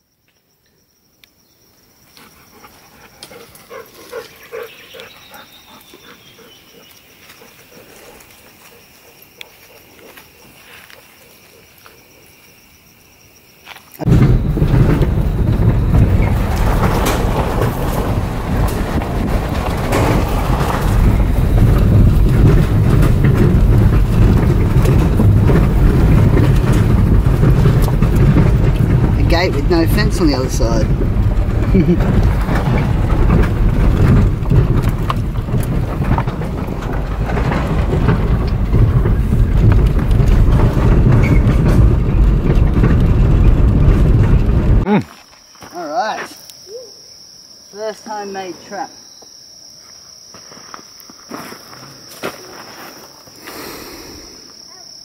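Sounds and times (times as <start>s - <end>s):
loud low rumbling noise: 14.1s - 44.9s.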